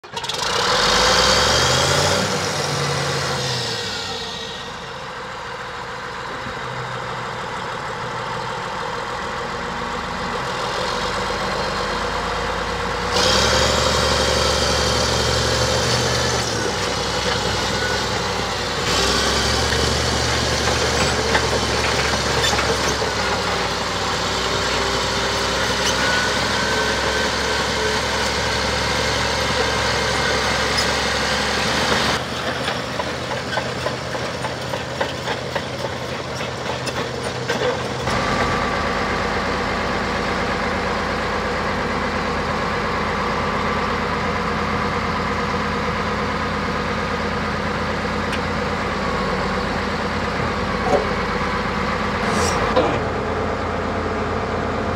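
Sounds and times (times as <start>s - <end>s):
bulldozer diesel engine running: 0.0s - 54.9s.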